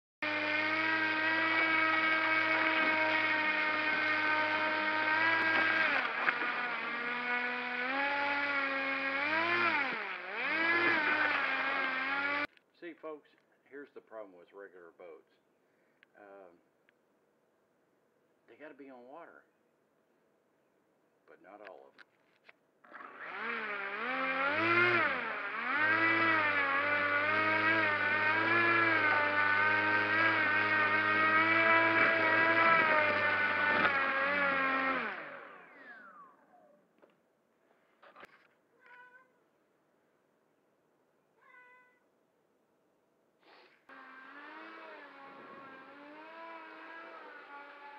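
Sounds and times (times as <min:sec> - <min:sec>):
airboat motor whining: 0:00.2 - 0:12.5, 0:22.9 - 0:36.2.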